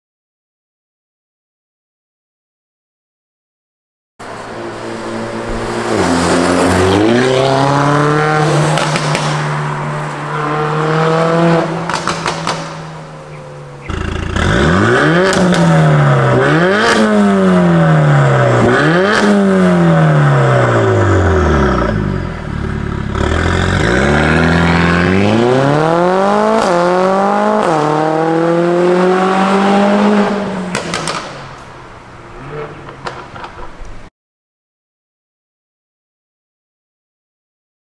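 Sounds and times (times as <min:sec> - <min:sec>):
car engine revving: 0:04.2 - 0:33.5
exhaust pops: 0:30.7 - 0:31.7.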